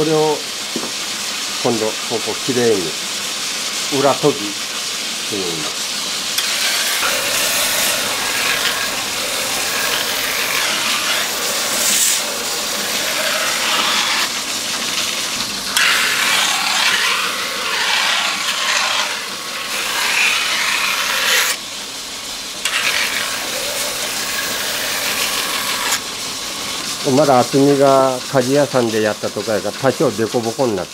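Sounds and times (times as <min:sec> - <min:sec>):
knife grinding on whetstone wheel: 0:05.4 - 0:21.6, 0:22.6 - 0:26.1.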